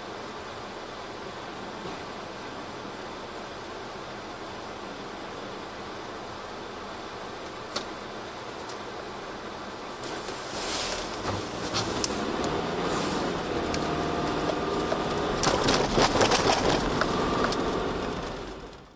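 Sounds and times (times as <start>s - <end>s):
car engine and tyre noise: 0.0s - 18.9s
wheels knocking over rails: 14.4s - 17.6s.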